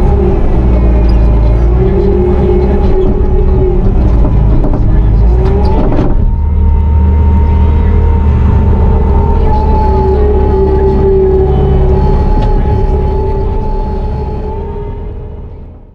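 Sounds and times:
loader diesel engine running hard: 0:00.0 - 0:15.9
short clatter: 0:02.8 - 0:06.9.

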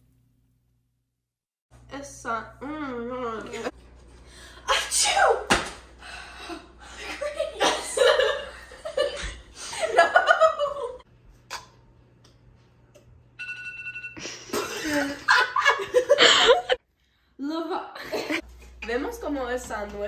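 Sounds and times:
people talking: 0:01.9 - 0:03.7, 0:07.0 - 0:08.3, 0:17.4 - 0:20.0
people laughing: 0:06.8 - 0:11.0, 0:14.2 - 0:16.8.

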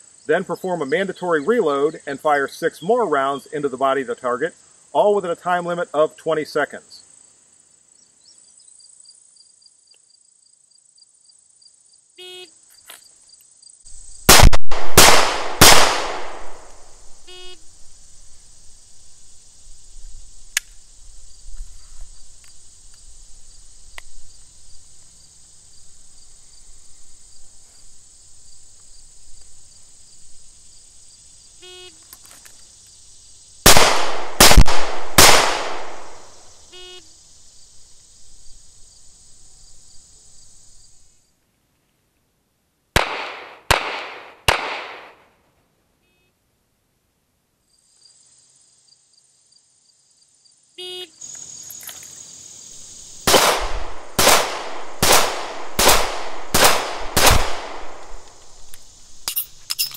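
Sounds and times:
insects chirring: 0:00.0 - 0:41.4, 0:47.6 - 0:59.9
pistol shots echoing: 0:14.3 - 0:16.9, 0:33.7 - 0:36.3, 0:43.0 - 0:45.2, 0:53.3 - 0:58.4.

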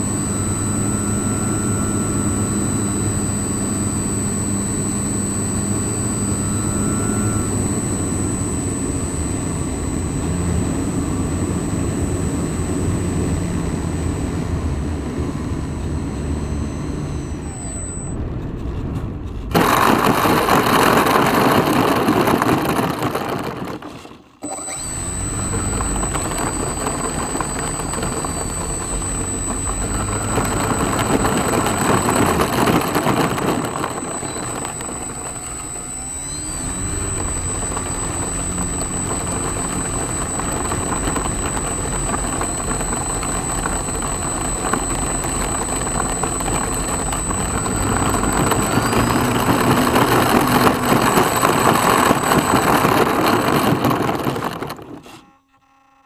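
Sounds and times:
model airplane motor whining: 0:00.0 - 0:56.0.

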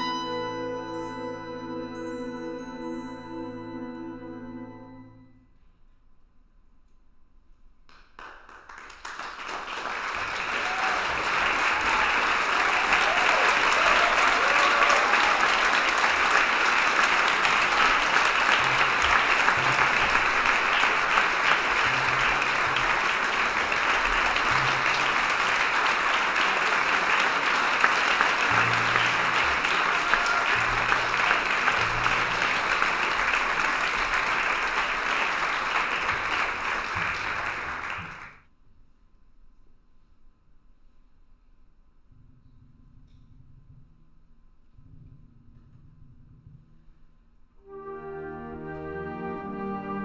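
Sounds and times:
audience applauding: 0:08.2 - 0:38.4.

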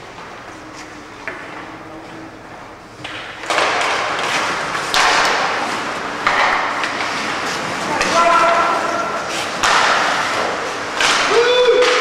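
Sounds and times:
hockey sticks and puck knocking: 0:02.9 - 0:12.0
skates scraping ice: 0:03.4 - 0:12.0.

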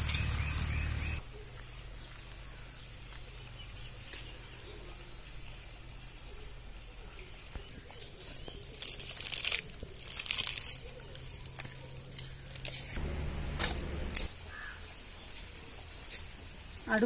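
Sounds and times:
fire crackling and snapping: 0:07.9 - 0:14.4.

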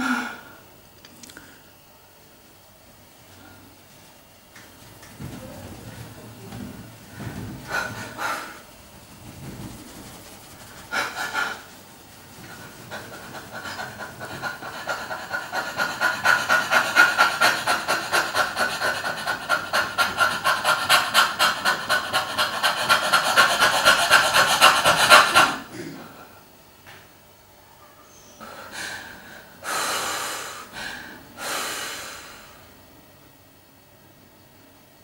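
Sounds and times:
woman panting fast: 0:06.5 - 0:08.7, 0:10.0 - 0:11.7, 0:12.3 - 0:25.7, 0:28.4 - 0:32.6.

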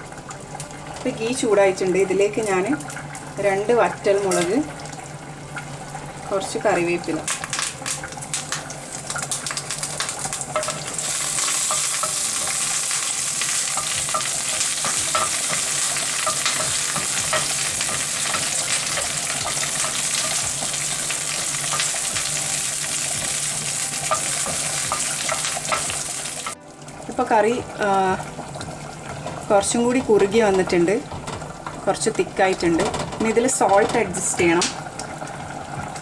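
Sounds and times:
spices sizzling in hot oil: 0:00.0 - 0:36.0
wooden spoon stirring in metal pan: 0:09.1 - 0:22.4.

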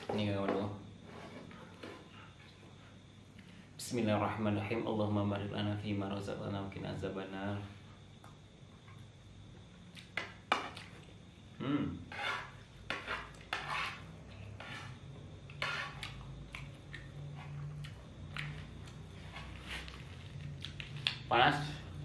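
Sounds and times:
metal spoon scraping a pan: 0:12.1 - 0:16.3.

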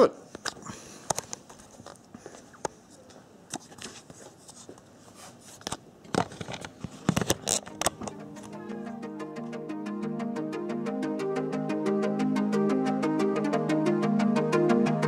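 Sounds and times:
camera handling noise: 0:05.6 - 0:08.6.

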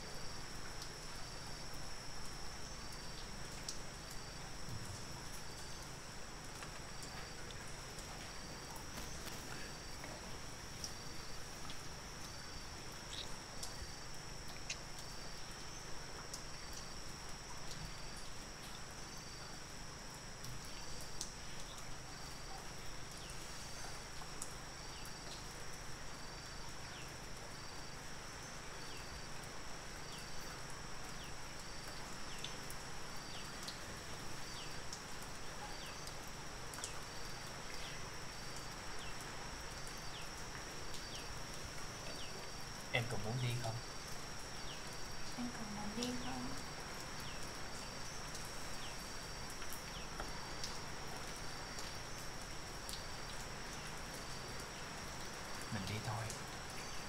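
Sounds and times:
insect chirping: 0:00.0 - 0:57.0
faint ticks: 0:00.6 - 0:10.2, 0:10.8 - 0:28.0, 0:30.1 - 0:57.0
insect high-pitched trill: 0:06.9 - 0:29.4, 0:36.8 - 0:57.0.

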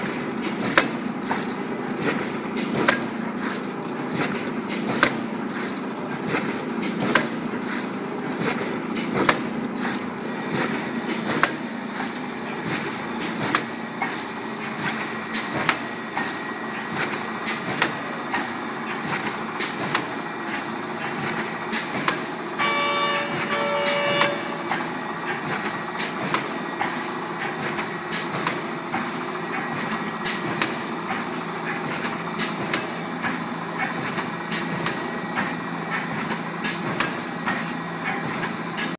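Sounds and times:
packing machine din: 0:00.0 - 0:38.9
sharp machine clack: 0:21.3 - 0:28.6
thin high machine whine: 0:21.6 - 0:27.4.

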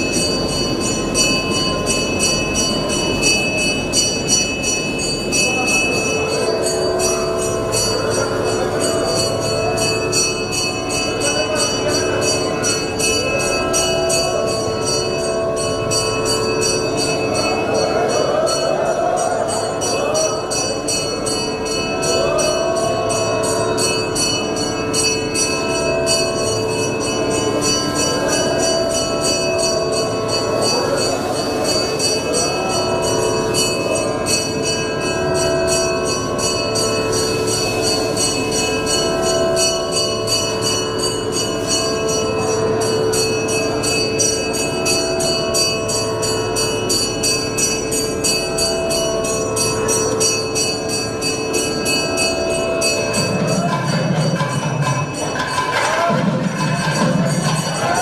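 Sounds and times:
temple bells ringing: 0:00.0 - 0:58.0.

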